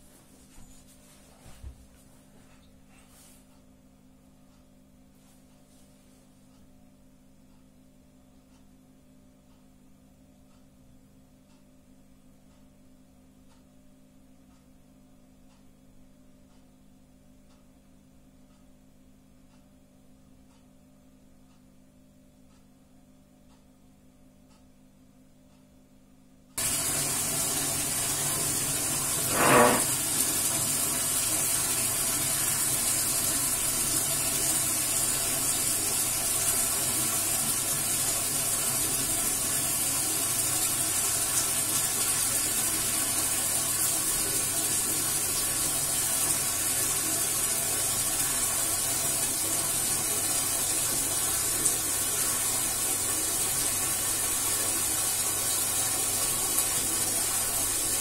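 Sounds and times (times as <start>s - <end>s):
running water hissing: 26.6s - 58.0s.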